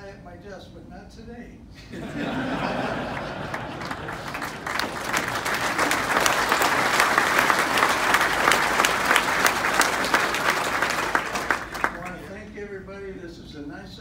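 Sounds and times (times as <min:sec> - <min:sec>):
audience clapping: 0:02.3 - 0:12.3.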